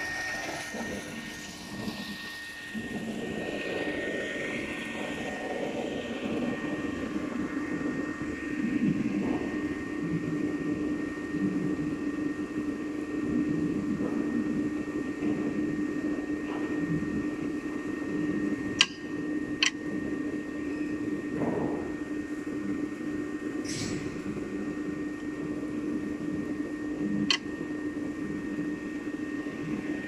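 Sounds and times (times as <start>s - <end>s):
slitting machine humming: 0.0s - 9.9s
high-pitched whine: 0.0s - 30.0s
sharp clicks: 18.8s - 19.0s.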